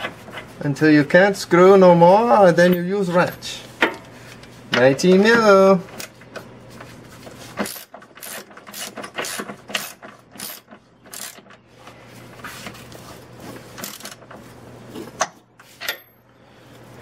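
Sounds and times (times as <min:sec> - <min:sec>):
hand ratchet clicking: 0:07.6 - 0:11.5.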